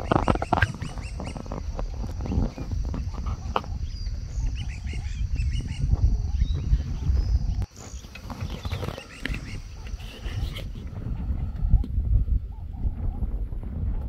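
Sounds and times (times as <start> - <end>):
high chirping animal calls: 0.0 - 11.8.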